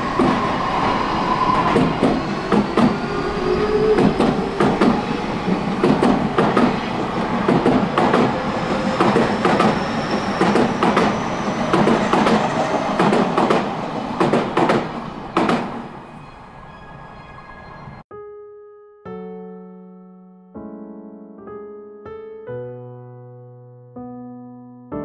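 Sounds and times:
train wheels clacking over rail joints: 1.6s - 3.1s, 3.8s - 15.8s.

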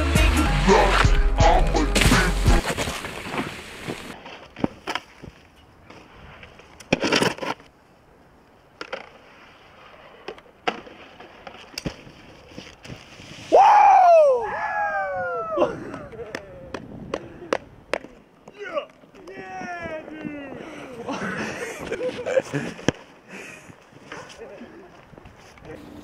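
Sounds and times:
snowboard clicks and knocks: 2.6s - 7.8s, 8.7s - 9.4s, 10.1s - 13.4s, 15.8s - 20.7s, 21.6s - 25.8s
snowboard scraping on stair rail: 12.1s - 13.6s
person shouting: 13.5s - 16.7s.

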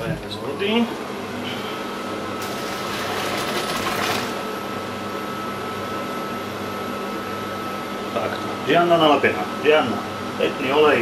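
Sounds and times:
hot water pouring into sink: 2.4s - 4.4s.

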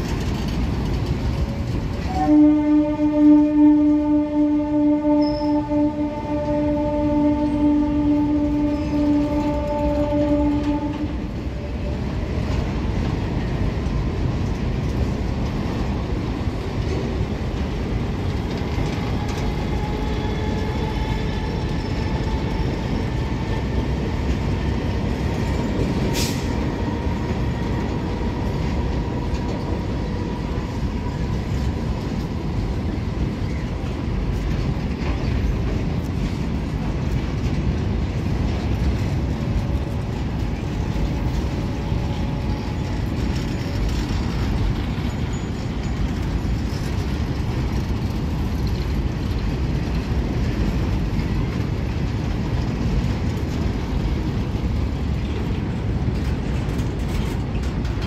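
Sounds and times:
train wagons rolling: 0.0s - 58.0s
faint thin squeal: 5.2s - 5.7s.

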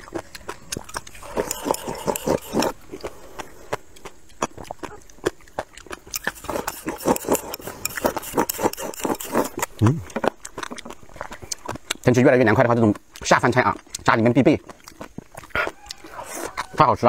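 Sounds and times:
slurping from a bowl: 0.0s - 4.1s, 5.8s - 11.8s, 15.3s - 16.8s
wet crunching and chewing: 0.0s - 17.0s.

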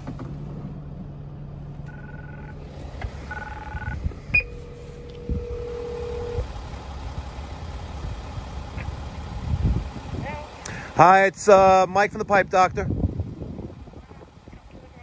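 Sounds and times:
low hum: 0.2s - 10.9s
intercom ringing tone: 1.9s - 2.6s, 3.3s - 6.8s.

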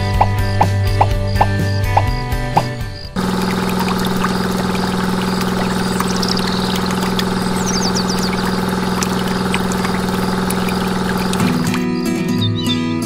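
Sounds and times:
small electric motor humming: 3.2s - 11.9s
liquid pouring into tin bucket: 3.2s - 12.0s.

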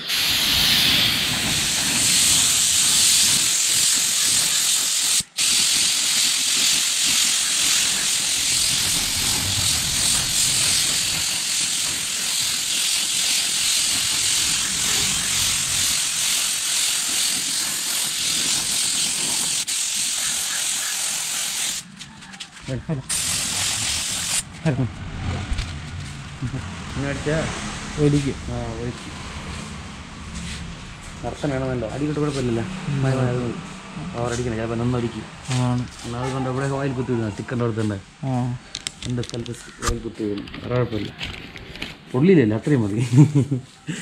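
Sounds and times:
spray gun hissing: 0.0s - 21.9s, 23.1s - 24.5s, 31.6s - 33.4s.

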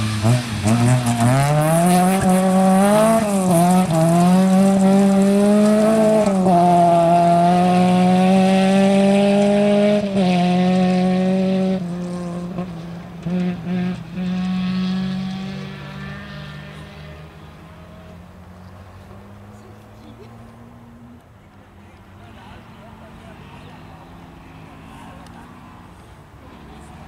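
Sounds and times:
rally car engine revving: 0.0s - 21.3s, 22.2s - 27.0s.

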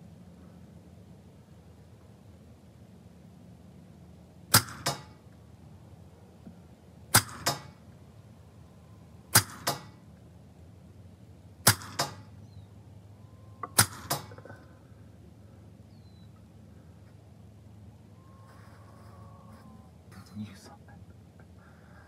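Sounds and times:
air pistol shots: 4.5s - 5.2s, 7.1s - 7.8s, 9.3s - 10.0s, 11.6s - 12.4s, 13.6s - 14.4s.

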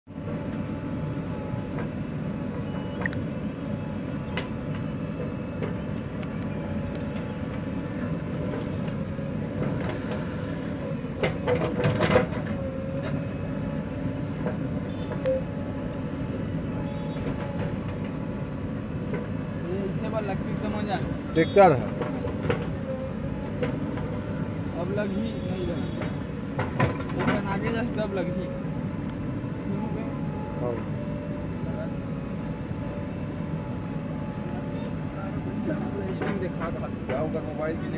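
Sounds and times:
diesel engine running under load: 0.1s - 37.9s
steady whine: 0.1s - 37.9s
backhoe digging soil: 7.0s - 13.4s
metal clanks and knocks: 11.2s - 12.6s, 26.0s - 27.7s.

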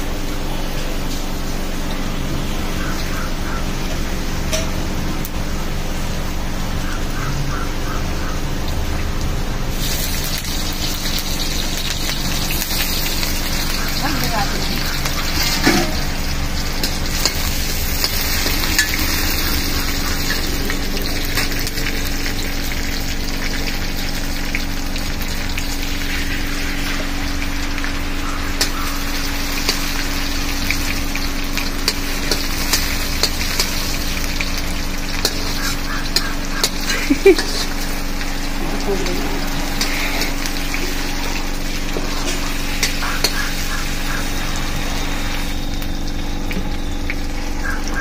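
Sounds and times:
oil sizzling in a pan: 0.0s - 48.0s
metal spoon scraping and tapping pan: 15.1s - 16.2s, 31.8s - 33.9s, 35.2s - 37.7s, 42.0s - 43.5s.

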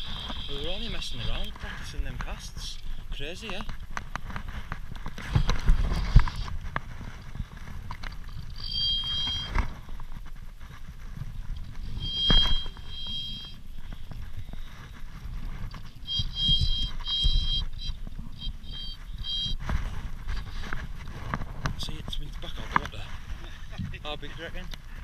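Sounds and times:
reel buzzing as line runs out: 8.2s - 9.9s.

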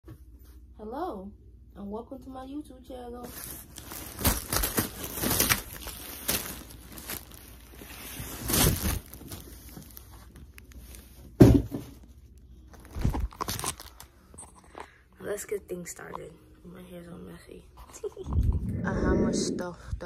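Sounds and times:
cardboard box and plastic bags rustling: 3.2s - 14.2s.

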